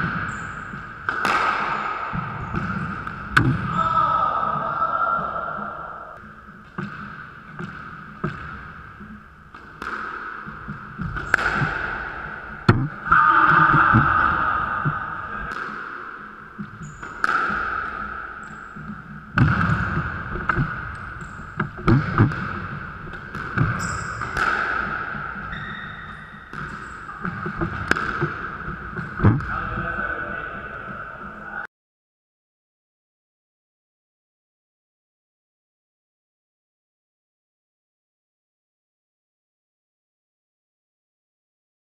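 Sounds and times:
squash ball hitting racquets and walls: 0:00.0 - 0:04.6, 0:06.2 - 0:29.6.

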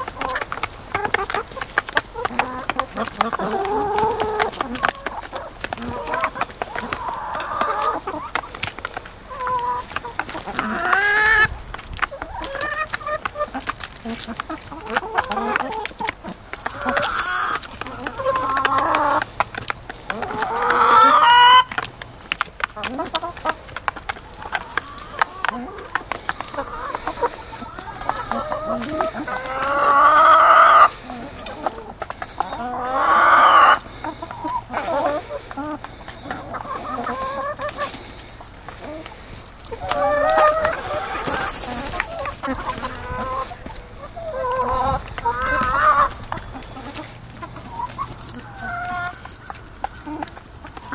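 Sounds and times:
chicken long drawn-out calls: 0:00.0 - 0:50.9
hens clucking: 0:00.0 - 0:50.9.

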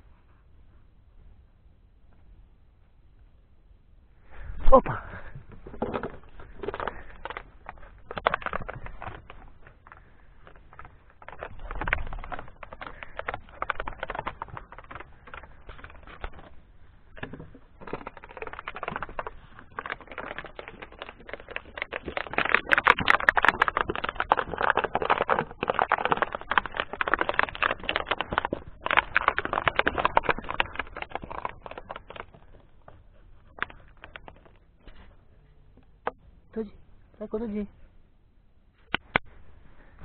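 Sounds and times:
dog chewing plastic bottle: 0:05.6 - 0:35.2.

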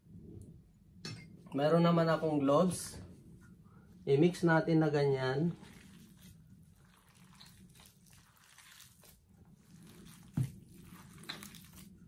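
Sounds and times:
soft wet squishing of kneading: 0:01.5 - 0:12.0.

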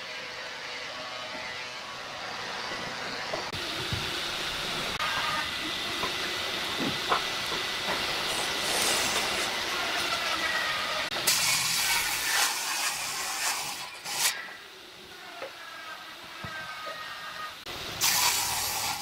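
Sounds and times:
table saw running: 0:00.0 - 0:14.4.

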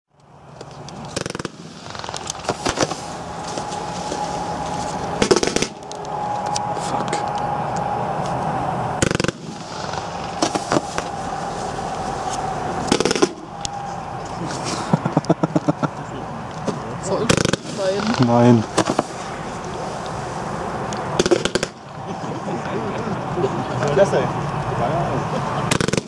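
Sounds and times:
loud firework bangs: 0:01.1 - 0:08.3, 0:08.9 - 0:15.8, 0:16.7 - 0:22.3, 0:25.6 - 0:26.0
firework shots hissing and whining: 0:01.1 - 0:15.0, 0:17.2 - 0:22.3, 0:25.6 - 0:26.0.

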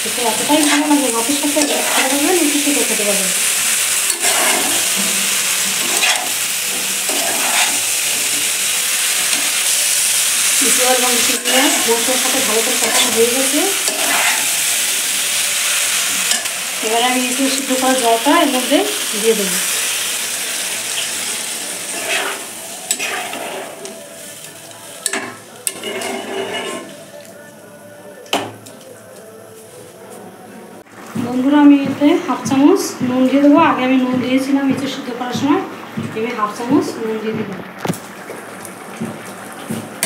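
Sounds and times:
food sizzling in a pan: 0:00.0 - 0:30.2, 0:30.8 - 0:40.0
metal spatula scraping pan: 0:00.3 - 0:14.8, 0:21.8 - 0:24.0, 0:25.0 - 0:27.0.

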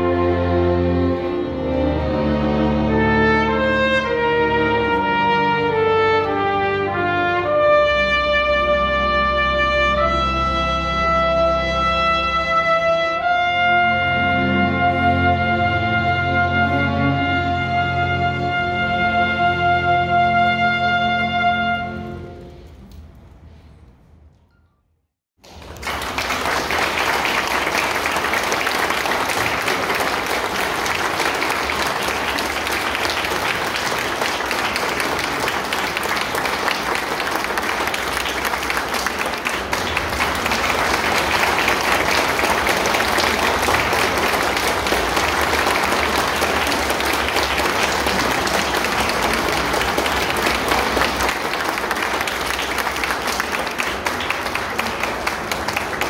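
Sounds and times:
audience applauding: 0:25.4 - 0:56.0.

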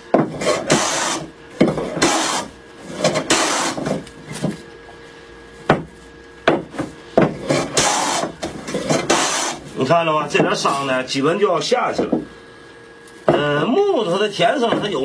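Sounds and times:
hand plane shaving wood: 0:00.3 - 0:04.0, 0:07.4 - 0:09.7
sharp knocks: 0:05.7 - 0:07.9.

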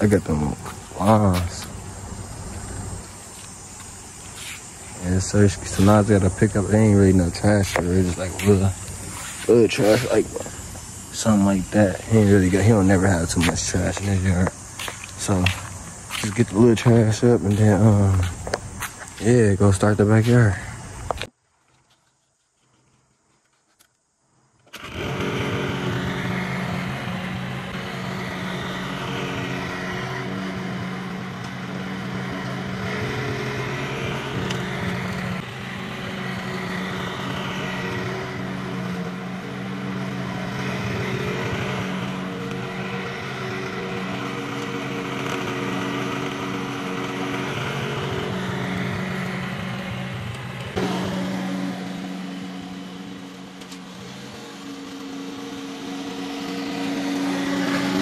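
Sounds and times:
small gasoline engine running: 0:00.0 - 0:21.2, 0:24.6 - 0:58.0.

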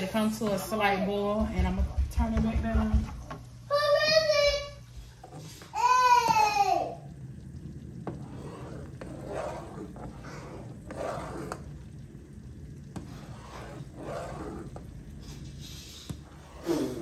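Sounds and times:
low steady hum: 0:00.0 - 0:17.0
soft scraping: 0:04.4 - 0:05.8, 0:07.4 - 0:17.0.

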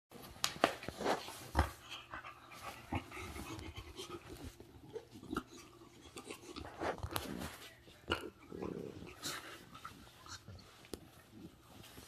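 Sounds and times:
dogs panting: 0:01.5 - 0:06.8.

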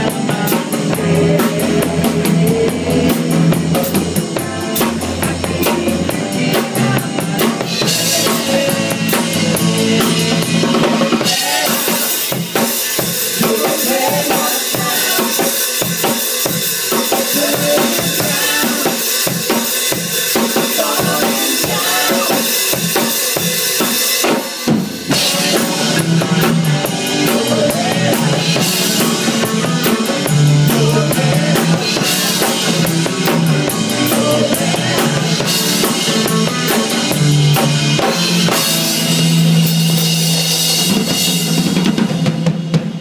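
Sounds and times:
low bass notes: 0:00.0 - 0:11.8, 0:25.0 - 0:42.0
band playing: 0:00.0 - 0:43.0
drums and cymbals: 0:00.0 - 0:43.0.

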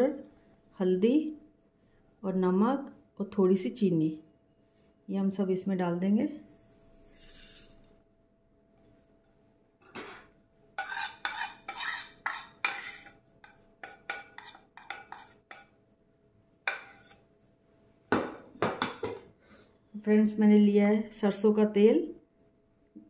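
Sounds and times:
plate clinking and scraping: 0:07.0 - 0:07.9, 0:09.8 - 0:15.7.

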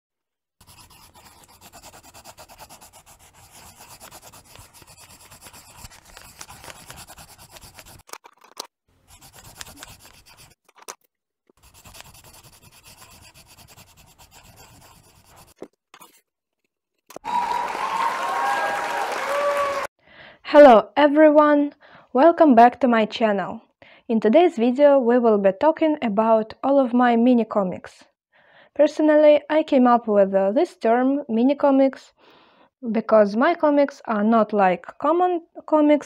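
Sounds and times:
coloured pencils scratching on paper: 0:00.6 - 0:08.3, 0:09.0 - 0:10.7, 0:11.5 - 0:16.2.

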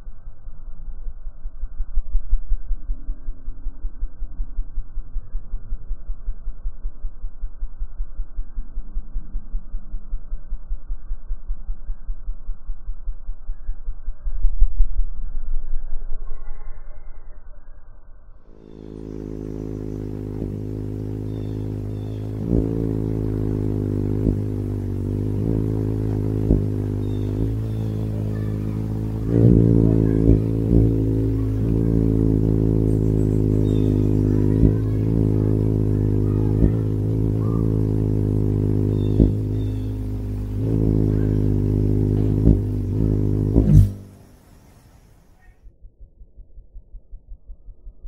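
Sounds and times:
hummingbird wings buzzing: 0:18.5 - 0:45.5.

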